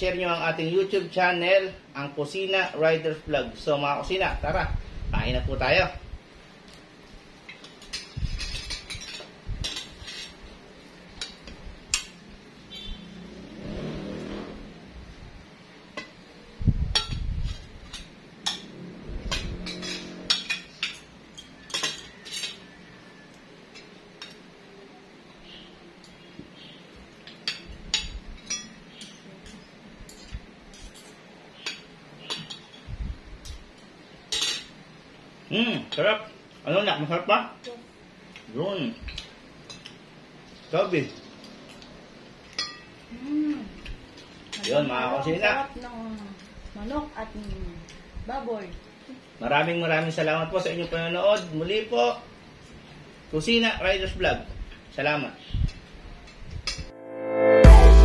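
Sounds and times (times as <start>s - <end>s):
cutlery clinking on plates: 7.4s - 10.4s, 17.0s - 24.5s, 27.2s - 34.8s, 41.7s - 43.0s.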